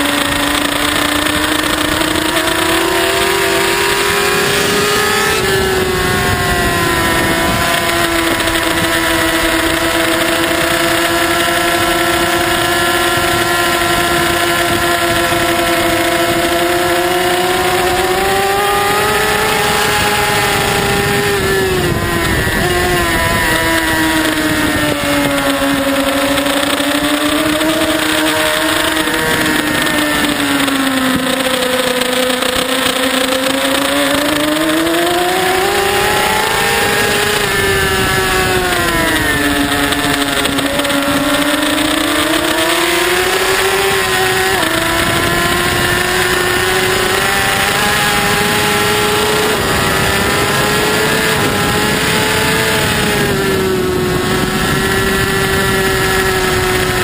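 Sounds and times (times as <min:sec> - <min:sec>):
motorbike engine at high revs: 0:00.0 - 0:57.0.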